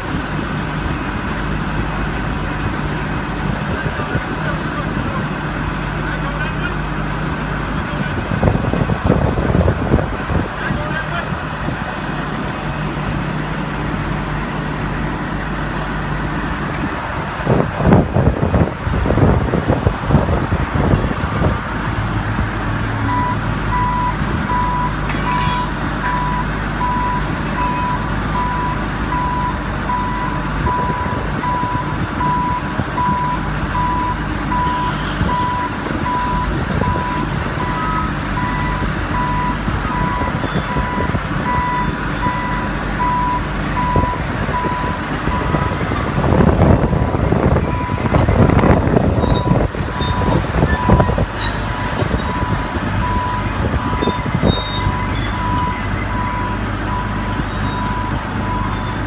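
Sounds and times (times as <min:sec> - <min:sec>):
diesel engine running: 0:00.0 - 0:59.0
gusty rush of noise: 0:07.6 - 0:15.0, 0:15.6 - 0:23.6, 0:43.5 - 0:55.6
crane warning alarm beeping: 0:23.0 - 0:45.8, 0:47.6 - 0:59.0.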